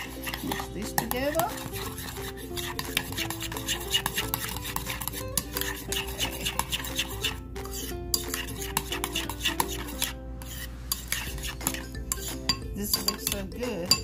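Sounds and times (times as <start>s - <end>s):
background music with melody: 0.0s - 14.0s
spoon scraping a bowl: 0.0s - 14.0s.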